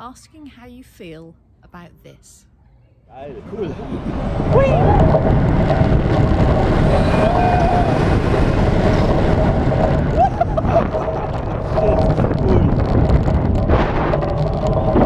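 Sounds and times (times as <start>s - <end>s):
roller coaster train rumbling: 3.1s - 15.0s
wind rushing on microphone: 3.2s - 15.0s
riders yelling: 3.8s - 5.4s, 6.8s - 8.7s.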